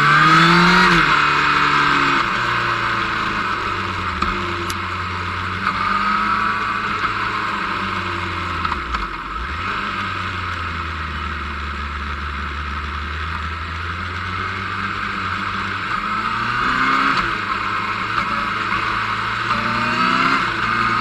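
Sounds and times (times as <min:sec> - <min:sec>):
motorcycle engine running: 0:00.0 - 0:21.0
wind and road noise: 0:00.0 - 0:21.0.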